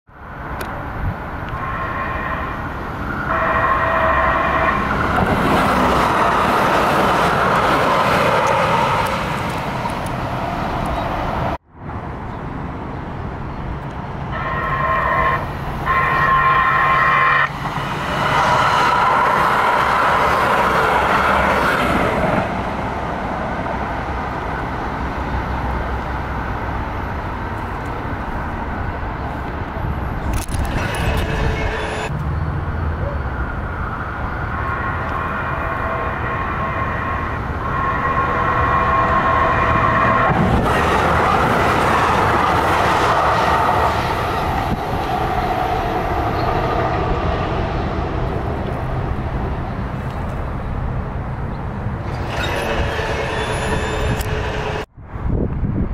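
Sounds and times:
train running through crossing: 0.1s - 11.6s, 12.3s - 55.9s
train horn blasts: 1.5s - 5.6s, 14.3s - 17.6s, 34.5s - 41.0s.

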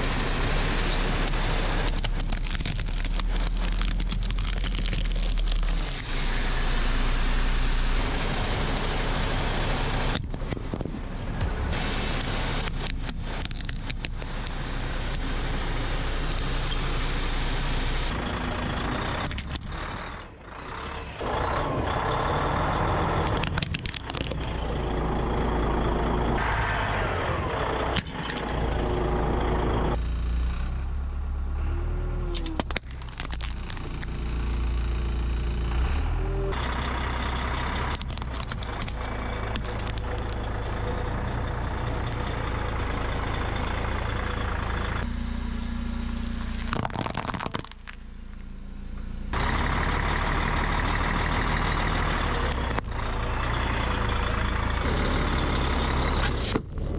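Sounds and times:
vehicle engines running low: 0.0s - 56.9s
objects cracking and crunching: 1.8s - 6.1s, 12.6s - 14.3s, 19.2s - 19.7s, 23.2s - 24.5s, 32.3s - 34.3s, 37.9s - 40.8s, 46.4s - 48.5s, 52.3s - 52.9s.

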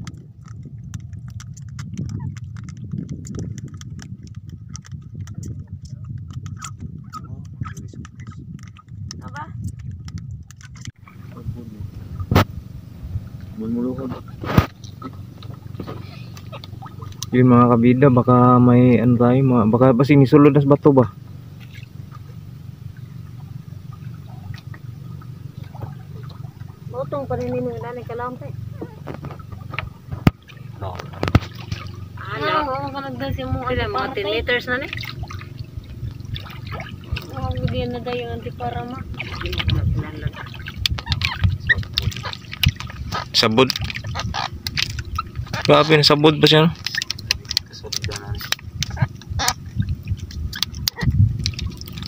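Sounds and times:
rapid irregular clicks and knocks: 0.0s - 11.0s, 28.8s - 32.1s, 40.6s - 52.0s
steady low rumble: 0.0s - 52.0s
water dripping and splashing: 0.0s - 52.0s.

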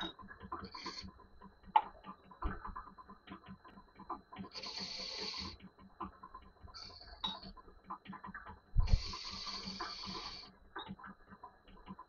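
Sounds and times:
metal lathe running: 4.5s - 5.6s.

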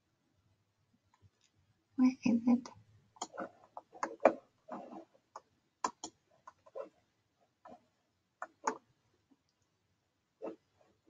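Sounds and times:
computer mouse clicks: 5.4s - 6.9s, 8.4s - 8.8s.

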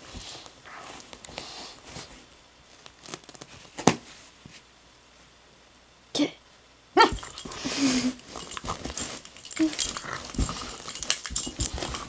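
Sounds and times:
puppy scuffling on carpet: 7.1s - 12.0s.

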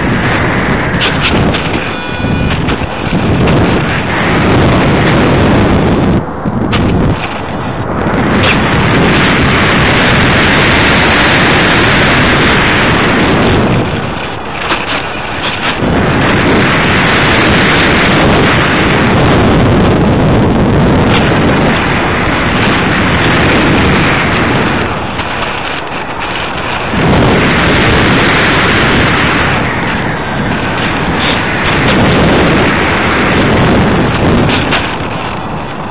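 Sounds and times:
wind buffeting microphone: 0.0s - 35.9s.

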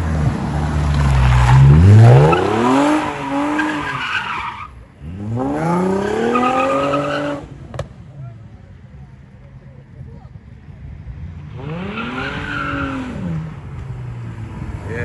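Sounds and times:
car engine revving hard: 1.5s - 4.0s, 5.0s - 7.5s, 11.5s - 13.5s.

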